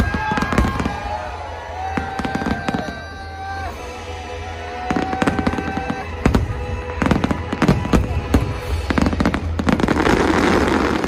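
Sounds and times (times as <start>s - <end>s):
fireworks bangs and crackles: 0.0s - 3.7s, 4.4s - 11.0s
music with long held notes: 0.0s - 11.0s.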